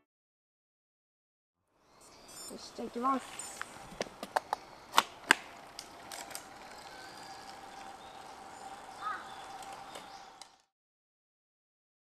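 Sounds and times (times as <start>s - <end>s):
faint steady high tone: 2.0s - 3.7s
light ticks from bike: 3.4s - 10.7s
bike cleats clicking into pedals: 3.6s - 10.6s.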